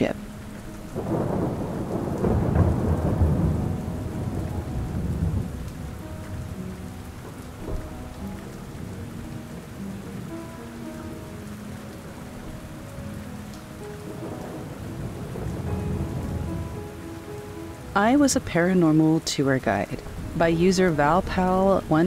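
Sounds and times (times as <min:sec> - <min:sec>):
soft background music: 0:00.0 - 0:22.0
steady rain: 0:00.0 - 0:22.0
thunder rolling: 0:00.9 - 0:09.5, 0:14.0 - 0:17.6.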